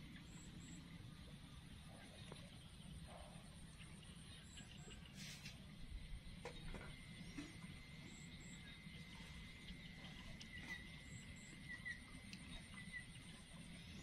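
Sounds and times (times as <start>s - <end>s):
faint background hum: 0.0s - 14.0s
thin steady high tone: 7.0s - 14.0s.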